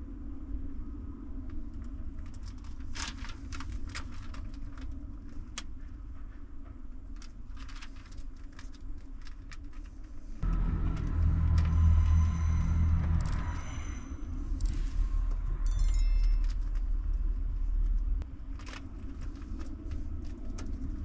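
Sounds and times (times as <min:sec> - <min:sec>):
steady low rumble: 0:10.4 - 0:21.0.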